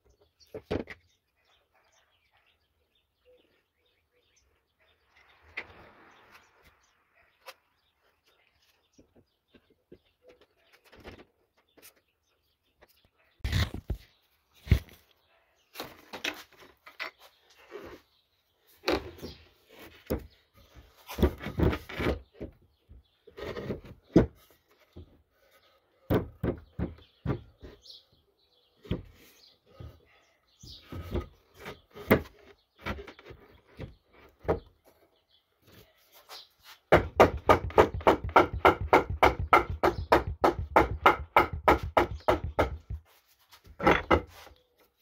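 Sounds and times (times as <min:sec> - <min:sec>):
wooden pieces knocking and scraping: 0:39.6 - 0:44.6.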